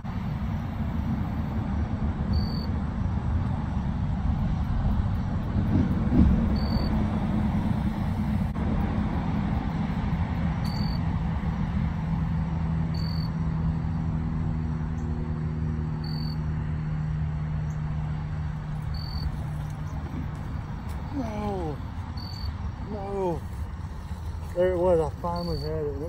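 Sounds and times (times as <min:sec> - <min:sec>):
low mechanical drone: 0:00.0 - 0:26.0.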